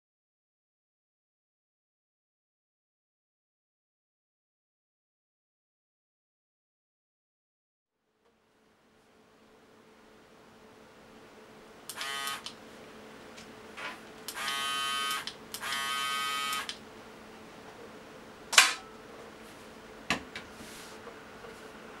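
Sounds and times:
electric shaver buzzing: 11.9s - 12.6s, 14.3s - 16.8s
sharp clicks: 11.9s - 12.6s, 14.3s - 15.9s, 16.5s - 16.8s.

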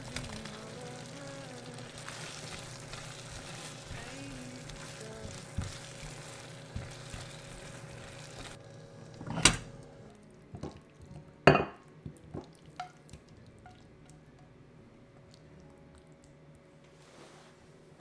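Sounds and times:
spatula stirring thick mixture: 1.7s - 8.6s
bowl clinking on oven dish: 11.5s - 11.8s.

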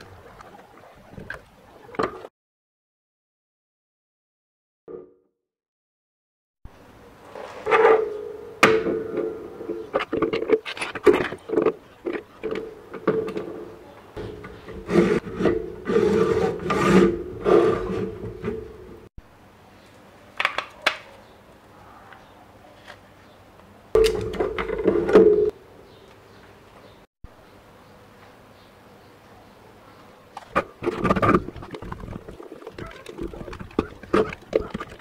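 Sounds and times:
plastic parts clicking and rubbing: 30.4s - 35.0s.

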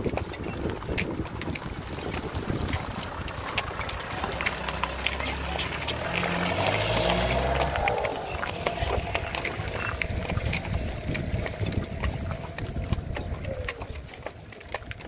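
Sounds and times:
hooves clip-clopping on gravel: 0.0s - 15.0s
car passing: 3.1s - 14.4s.

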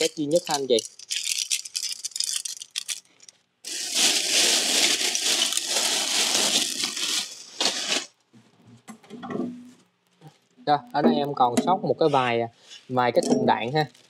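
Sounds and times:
plastic bag crinkling: 0.0s - 8.2s, 13.6s - 14.0s.

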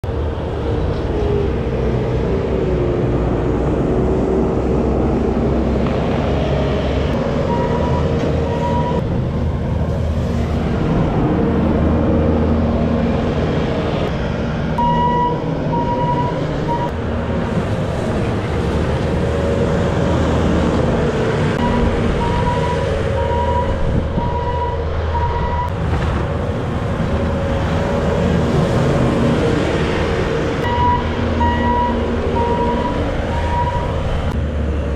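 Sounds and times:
diesel engine under load: 0.0s - 34.9s
backup alarm beeping: 7.5s - 9.0s, 14.8s - 16.9s, 21.6s - 25.7s, 30.6s - 33.9s.

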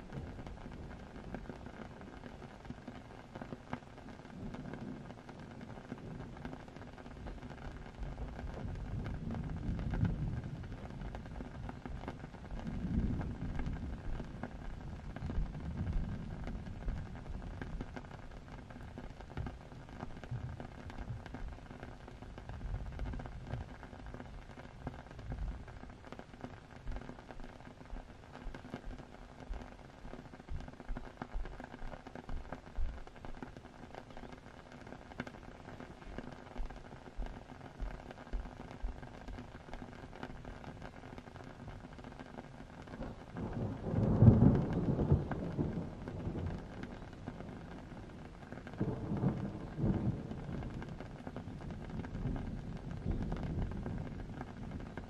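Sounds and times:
thunder rumbling: 0.0s - 2.9s, 4.2s - 26.0s, 42.7s - 55.0s
steady rain: 0.0s - 55.0s.

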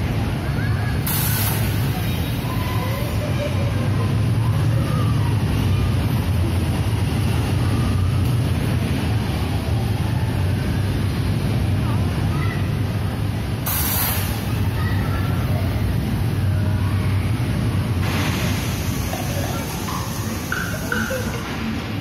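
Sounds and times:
ride machinery hum: 0.0s - 22.0s
compressed air hiss: 1.0s - 2.3s, 13.6s - 14.6s, 18.0s - 20.6s.

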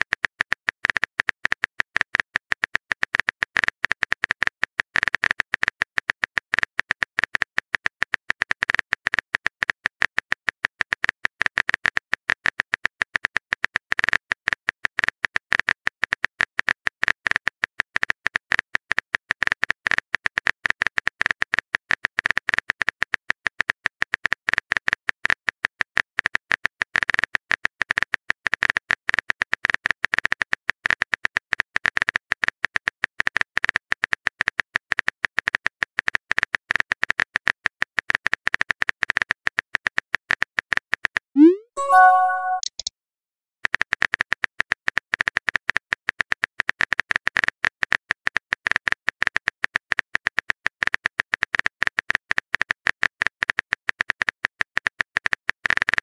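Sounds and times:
keyboard typing clicks: 41.4s - 42.9s.

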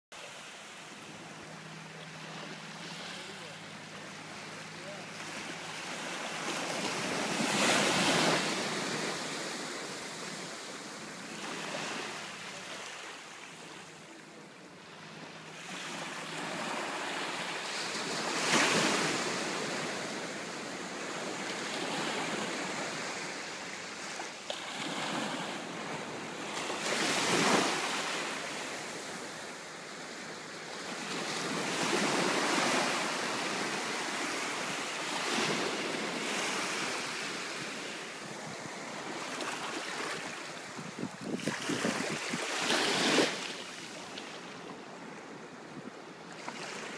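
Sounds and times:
small waves washing on sand: 0.2s - 14.2s, 15.1s - 45.4s.

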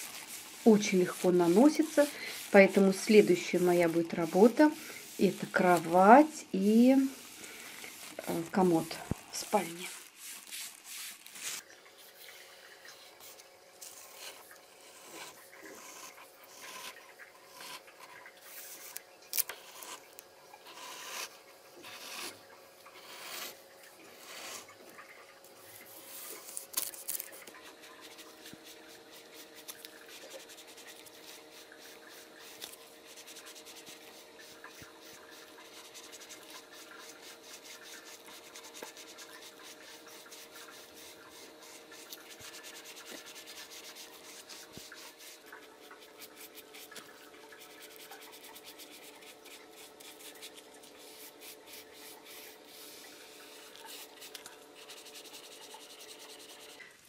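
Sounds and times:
paintbrush rubbing on wood: 0.0s - 12.3s, 25.7s - 56.8s
faint steady hum: 0.0s - 57.0s.

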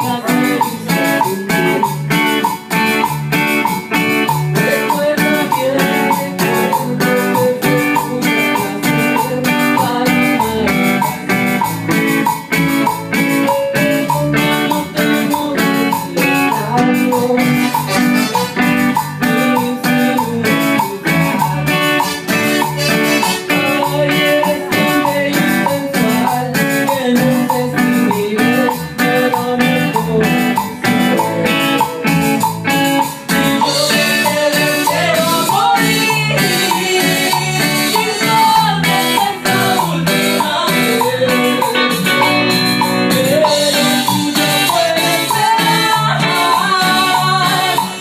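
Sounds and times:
live band playing cumbia: 0.0s - 48.0s
woman singing into microphone: 4.6s - 11.2s, 19.3s - 32.4s, 33.6s - 48.0s.

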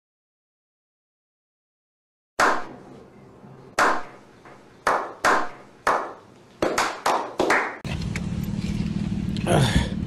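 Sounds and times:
hand claps: 3.8s - 7.8s.

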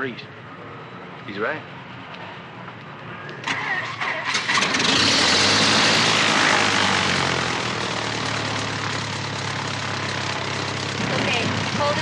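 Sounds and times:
aircraft engine sputtering and running: 4.3s - 12.0s.

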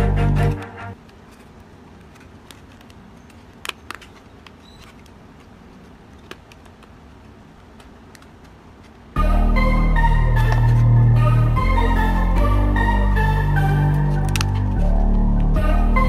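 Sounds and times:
cardboard rustling: 1.0s - 9.2s.

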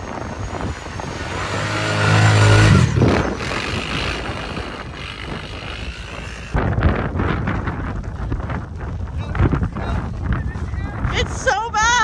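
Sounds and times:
atv engine revving: 0.4s - 6.6s.

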